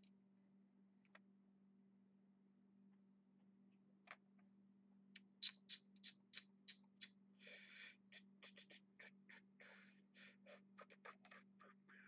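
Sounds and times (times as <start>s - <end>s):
short breaths: 7.4s - 8.1s.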